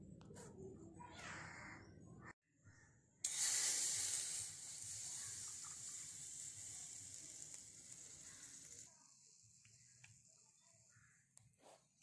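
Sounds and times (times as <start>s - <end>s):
water hissing on hot metal: 3.2s - 11.0s.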